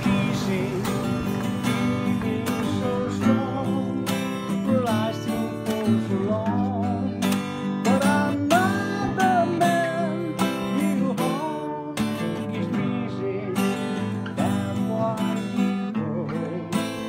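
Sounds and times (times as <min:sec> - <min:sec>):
acoustic guitar strumming: 0:00.0 - 0:17.0
man singing: 0:00.0 - 0:17.0.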